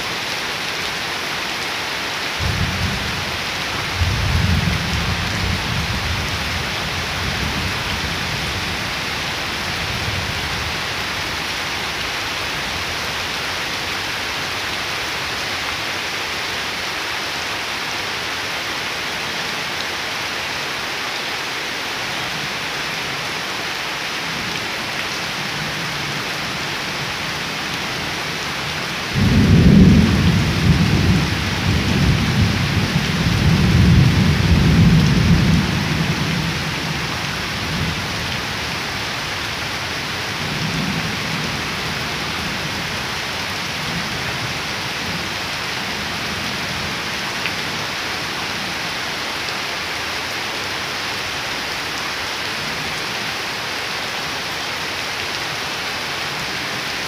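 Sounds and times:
rain falling on puddles and leaves: 0.0 - 57.0
thunder rumbling: 29.2 - 36.4.

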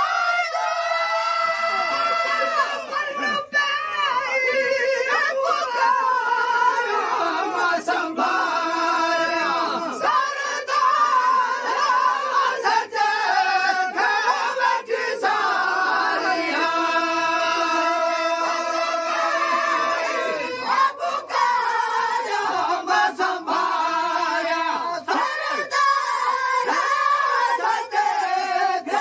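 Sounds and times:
men singing together unaccompanied: 0.0 - 29.0.

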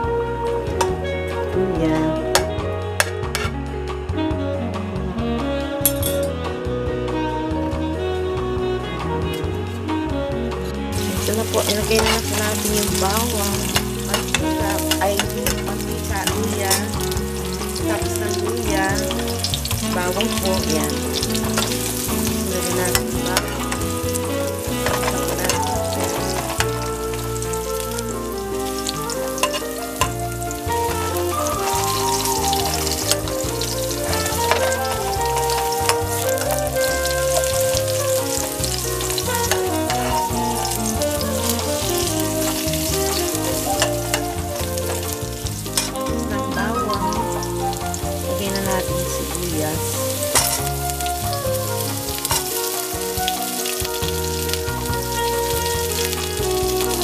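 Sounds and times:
background music: 0.0 - 57.0
food sizzling in oil: 10.9 - 57.0
metal spoon stirring in pan: 11.1 - 27.5, 28.8 - 30.2, 32.9 - 40.3, 45.6 - 46.0, 50.3 - 51.0.

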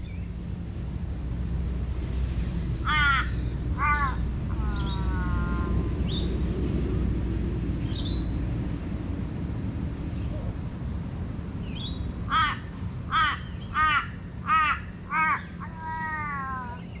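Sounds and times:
crow cawing: 2.8 - 5.8, 12.3 - 16.8
small bird chirping: 11.6 - 12.1.

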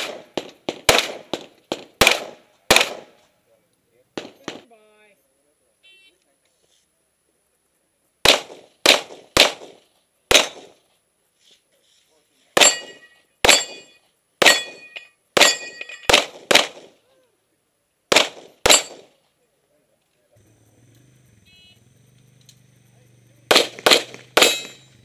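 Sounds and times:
pistol shots: 0.0 - 3.2, 4.2 - 4.7, 8.2 - 10.8, 12.6 - 17.0, 18.1 - 19.2, 23.5 - 24.9
steel targets ringing: 12.6 - 16.1, 18.7 - 19.1, 23.5 - 25.0.

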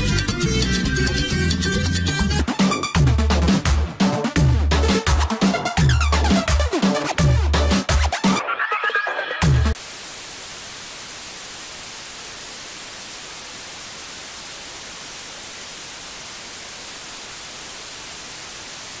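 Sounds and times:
television static hiss: 8.1 - 19.0.

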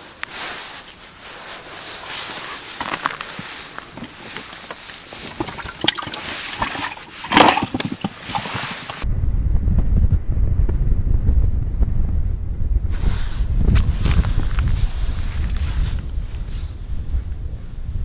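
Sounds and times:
clothing and gloves rustling: 0.0 - 9.0, 12.9 - 16.8
wind rumble on microphone: 0.0 - 18.0.

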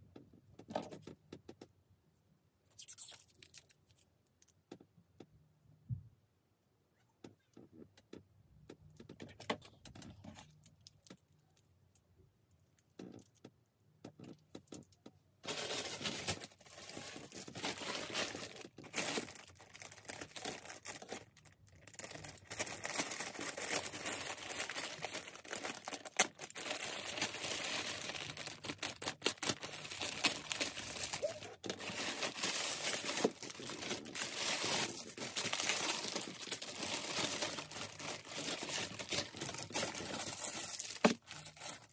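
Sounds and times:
plastic mailer bag crinkling tearing: 15.4 - 41.9.

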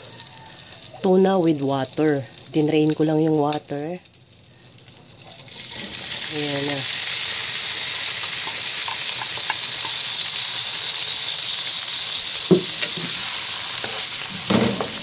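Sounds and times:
fish sizzling in butter: 0.0 - 15.0
spatula knocking on pan: 12.5 - 13.2.

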